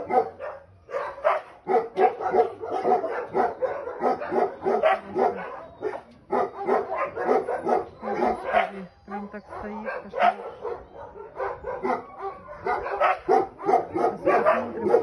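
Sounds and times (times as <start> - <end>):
dog yelping barks: 0.0 - 15.0.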